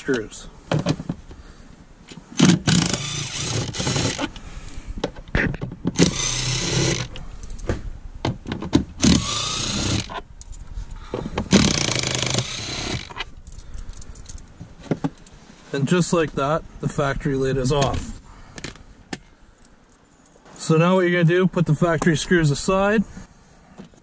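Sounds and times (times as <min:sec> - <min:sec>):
power drill motor running: 0:02.4 - 0:04.3, 0:06.0 - 0:07.1, 0:09.0 - 0:10.2, 0:11.5 - 0:13.2.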